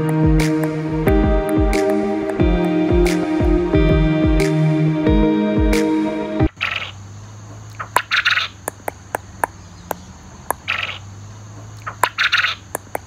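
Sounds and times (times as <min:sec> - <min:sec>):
sharp ticks: 0:07.7 - 0:11.0, 0:11.6 - 0:13.0.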